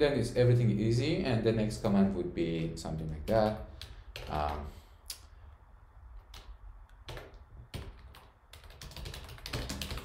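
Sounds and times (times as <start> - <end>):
typing on computer keyboard: 3.0 - 4.6, 6.3 - 10.0.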